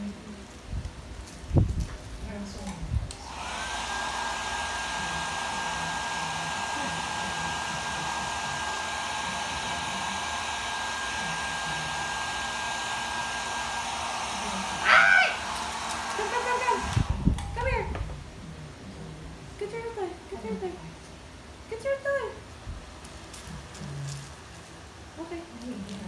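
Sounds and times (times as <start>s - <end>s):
hair dryer running: 3.0s - 18.1s
short loud cry: 14.8s - 15.4s.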